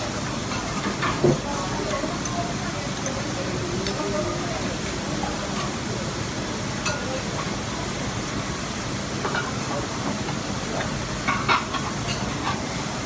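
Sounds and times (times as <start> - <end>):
faint voices: 0.0 - 8.1
restaurant background hiss: 0.0 - 13.0.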